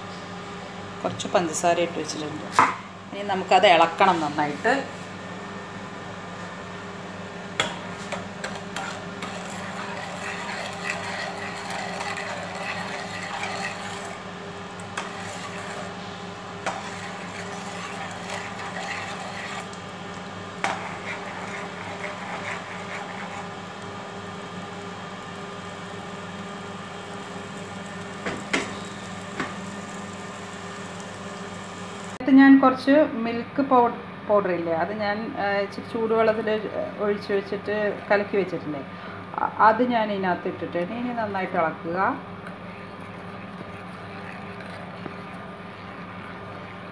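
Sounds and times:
steady low hum: 0.0s - 46.9s
spoon scraping a pan: 8.4s - 14.2s, 14.9s - 16.0s, 16.6s - 19.7s, 20.6s - 23.6s.

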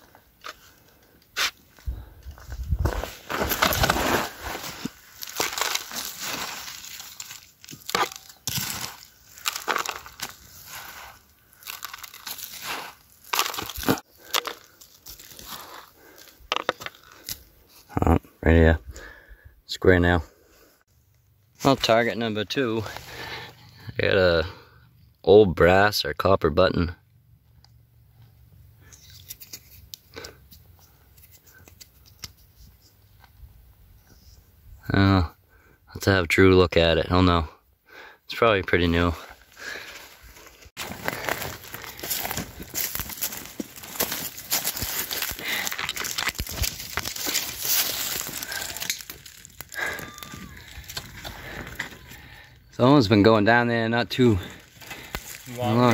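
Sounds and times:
hand scraping gravel: 1.2s - 17.5s, 38.9s - 52.2s, 54.2s - 55.9s.

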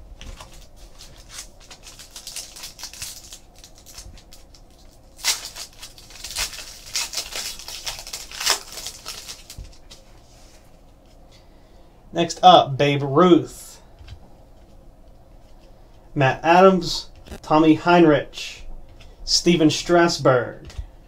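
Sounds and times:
foil wrapper tearing and crinkling: 0.2s - 9.9s
trading cards rustling: 0.2s - 10.1s.

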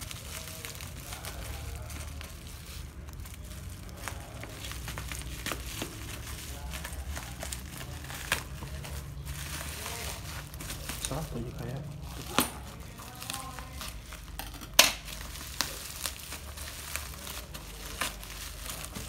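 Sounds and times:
bubble wrap crinkling: 0.0s - 19.0s.

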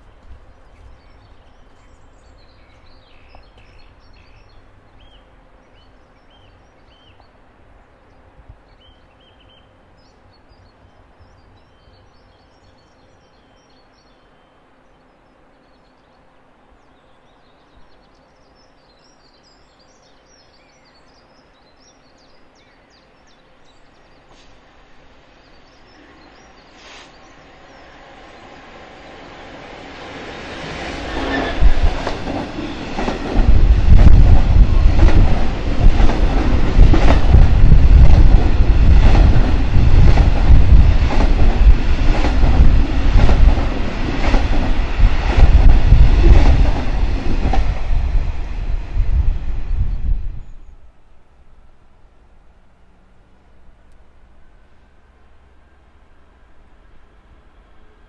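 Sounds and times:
birds chirping: 0.0s - 29.6s
approaching train rumble: 0.0s - 58.0s
low outdoor hum: 50.4s - 58.0s.

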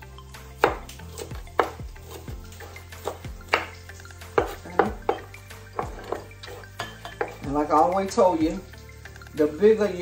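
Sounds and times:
background music with low beat: 0.0s - 10.0s
knife chopping on wooden board: 0.6s - 7.4s.

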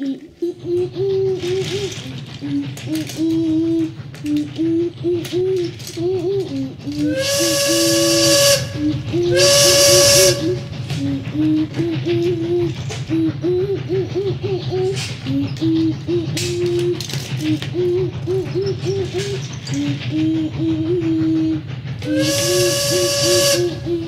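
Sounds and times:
hissing steam: 0.0s - 24.0s
steam locomotive whistle: 6.9s - 11.1s, 22.0s - 24.0s.

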